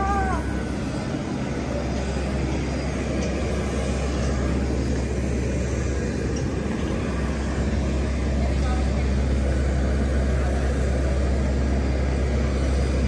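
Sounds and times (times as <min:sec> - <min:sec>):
aircraft rumble with hiss: 0:00.0 - 0:13.0.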